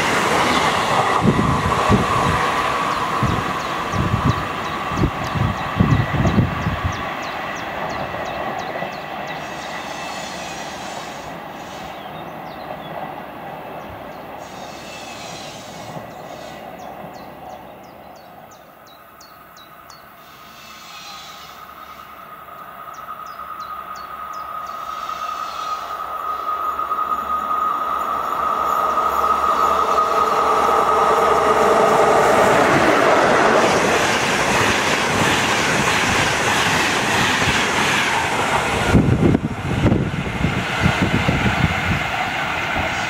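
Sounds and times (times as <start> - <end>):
electric train rumbling: 0.0 - 43.0
locomotive high whine: 20.2 - 43.0.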